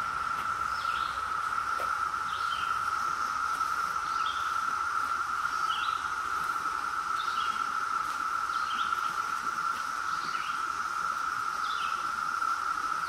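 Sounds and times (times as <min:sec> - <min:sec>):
cicada chorus droning: 0:00.0 - 0:13.0.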